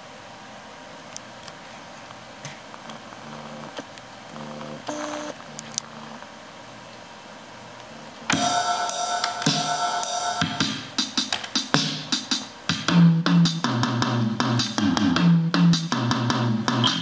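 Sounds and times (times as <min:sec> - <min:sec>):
electronic drum hits: 0:08.3 - 0:17.0.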